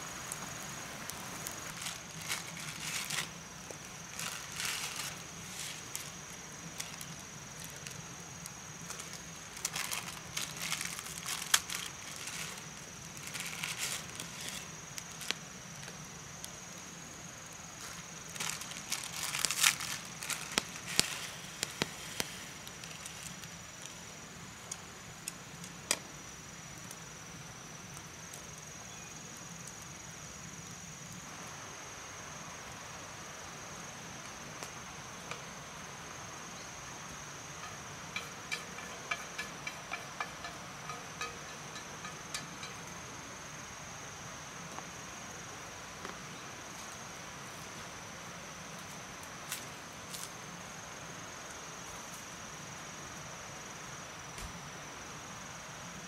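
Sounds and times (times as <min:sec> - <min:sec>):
food crackling in oil: 0:00.1 - 0:16.8, 0:17.4 - 0:27.1, 0:37.0 - 0:43.2
plastic packet crinkling: 0:01.7 - 0:03.4, 0:04.1 - 0:06.1, 0:08.9 - 0:15.3, 0:18.3 - 0:21.2.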